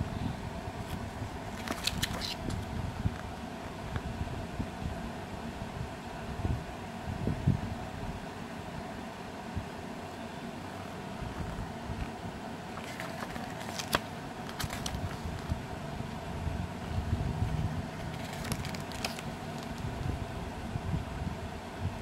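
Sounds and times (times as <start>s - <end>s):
steady background noise: 0.0s - 22.0s
paper pages rustling: 0.9s - 2.7s, 12.7s - 15.6s, 18.0s - 19.9s
crisp paper clicks: 1.5s - 2.6s, 12.8s - 15.6s, 18.0s - 19.9s.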